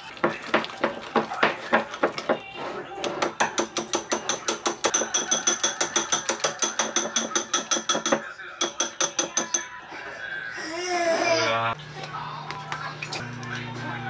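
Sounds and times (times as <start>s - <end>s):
whisk beating batter in bowl: 0.0s - 9.6s.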